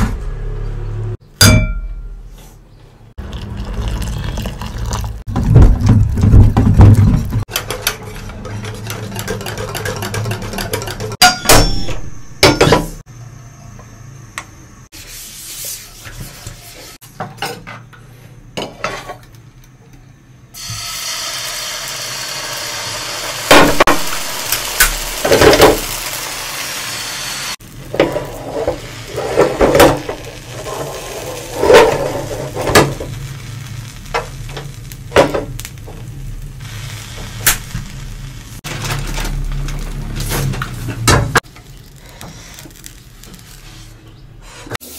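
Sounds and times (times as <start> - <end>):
utensils knocking against pan: 6.6 - 12.9
batter hissing in frying pan: 20.6 - 44.9.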